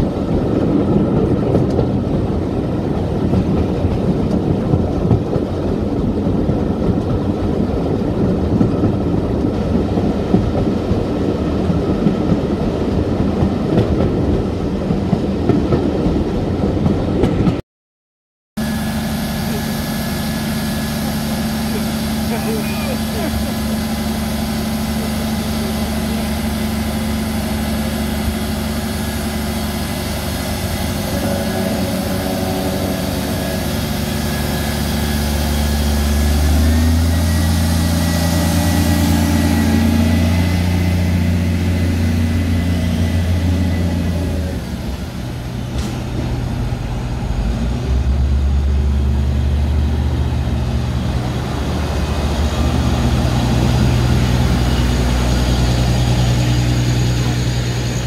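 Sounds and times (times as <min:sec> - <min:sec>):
diesel engine running: 0:18.6 - 0:58.0
high whine: 0:18.6 - 0:58.0.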